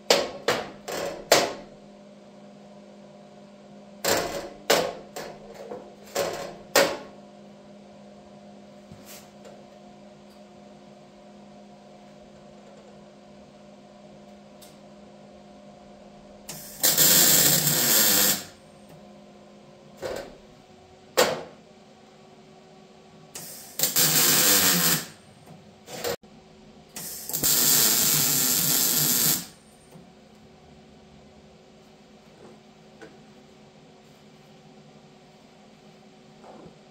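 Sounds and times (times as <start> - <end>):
wire-feed welder arcing: 16.5 - 18.6, 23.4 - 25.2, 27.0 - 29.6.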